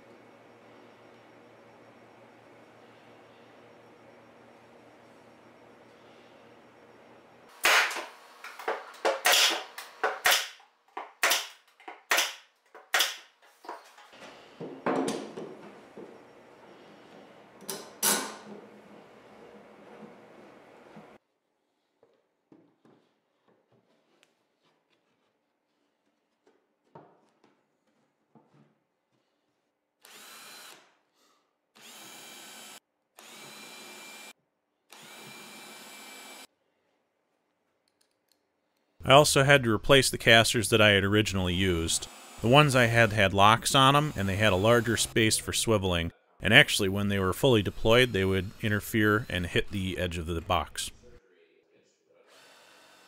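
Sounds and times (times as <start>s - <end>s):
cordless drill boring into plywood: 30.0s - 30.9s, 31.8s - 34.3s, 34.9s - 36.5s, 42.0s - 42.5s, 52.3s - 53.0s.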